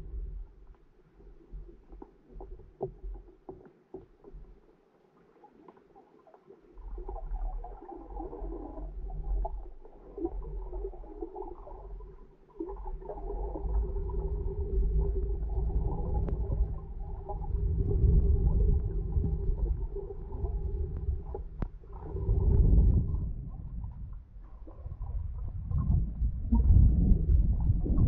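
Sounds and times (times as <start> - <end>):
muffled underwater water movement: 0.0 - 28.0
water churning: 6.6 - 28.0.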